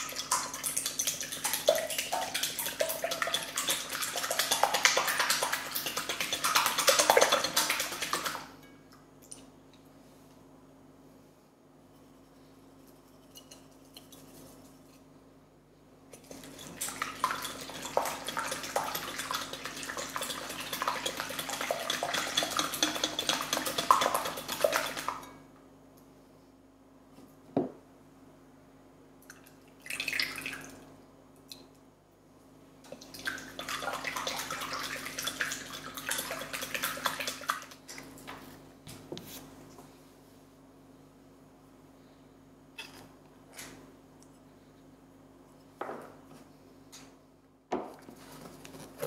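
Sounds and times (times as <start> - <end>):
whisk beating in glass bowl: 0.0 - 8.5, 16.2 - 25.4, 33.3 - 37.8
liquid pouring into bowl: 16.2 - 25.3, 33.0 - 38.0.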